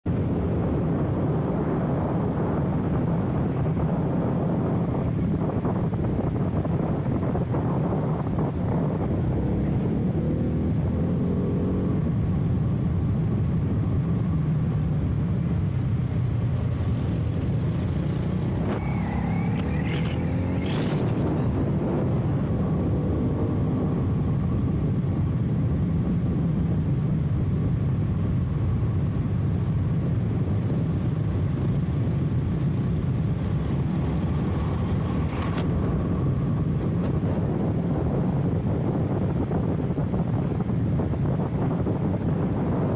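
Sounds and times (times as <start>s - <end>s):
wind rush on microphone: 0.0s - 42.9s
motorcycle engine accelerating: 0.7s - 42.9s.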